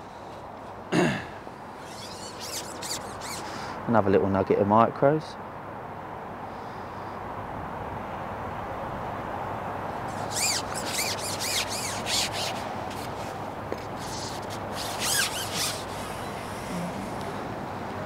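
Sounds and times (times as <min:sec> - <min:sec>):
outdoor background hiss: 0:00.0 - 0:18.0
fishing pole sections squeaking: 0:01.8 - 0:03.8, 0:10.1 - 0:16.6.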